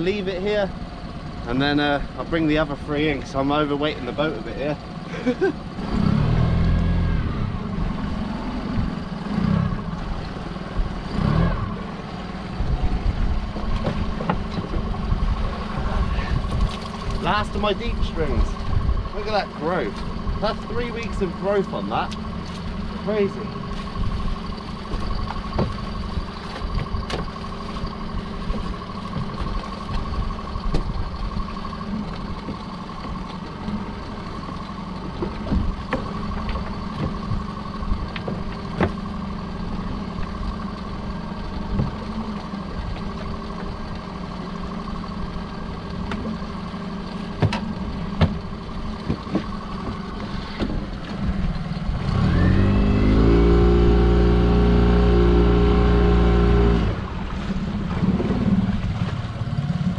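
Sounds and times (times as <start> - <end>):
boat engine: 0.0 - 59.9
knocks and clatter of gear: 13.4 - 15.2, 23.6 - 39.2, 45.8 - 51.9.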